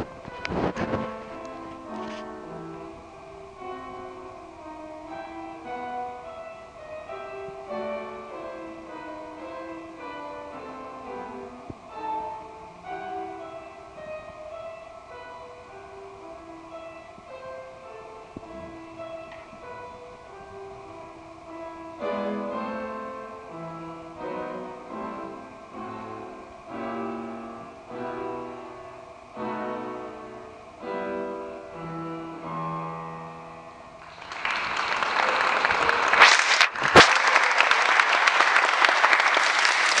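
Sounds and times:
upright piano playing slow chords: 0.0s - 34.6s
audience applause: 34.0s - 40.0s.

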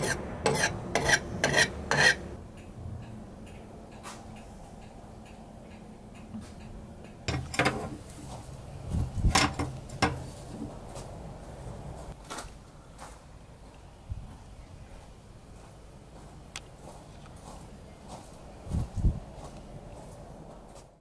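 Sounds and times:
blade rasping on sharpener: 0.0s - 2.2s
sharp knocks and clicks: 9.2s - 10.3s.

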